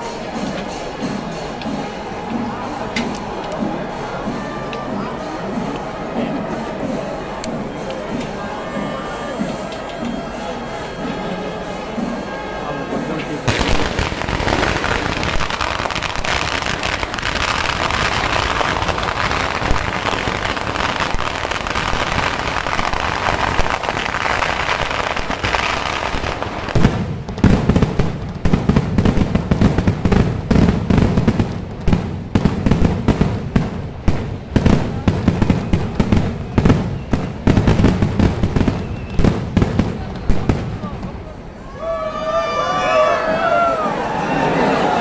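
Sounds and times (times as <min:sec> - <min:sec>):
firecrackers crackling: 0:13.0 - 0:41.4
loud firework bangs: 0:13.4 - 0:41.3.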